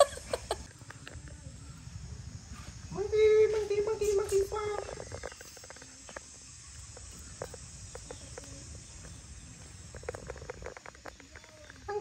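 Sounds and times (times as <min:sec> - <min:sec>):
insects hissing: 0:00.0 - 0:12.0.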